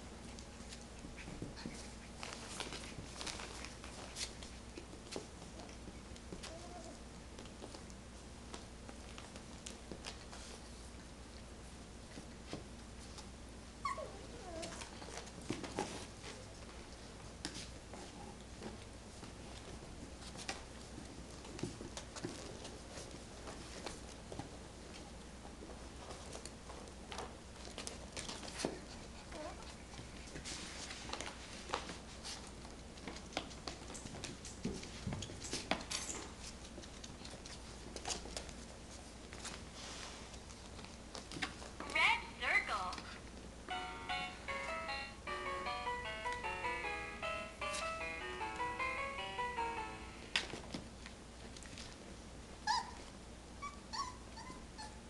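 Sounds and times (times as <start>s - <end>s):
puppies clicking on hardwood floor: 0.1s - 13.3s, 14.0s - 42.0s
puppy yelping: 13.8s - 14.7s, 52.7s - 53.0s
puppy whining: 13.8s - 15.3s, 29.2s - 29.8s, 52.6s - 55.0s.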